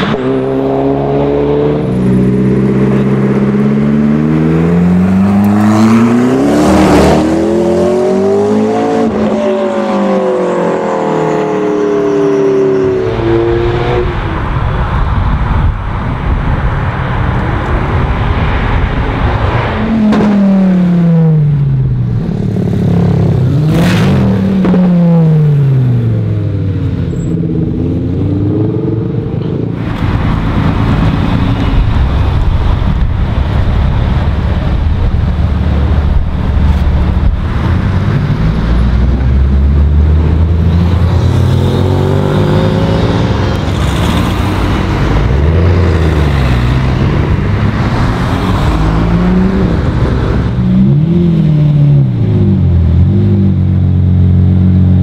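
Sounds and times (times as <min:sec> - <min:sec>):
sports car engines revving: 0:00.0 - 0:55.0.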